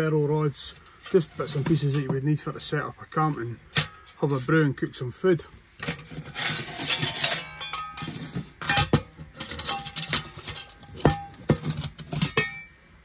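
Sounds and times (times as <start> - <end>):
metal cookware knocking and clinking: 6.8 - 12.8.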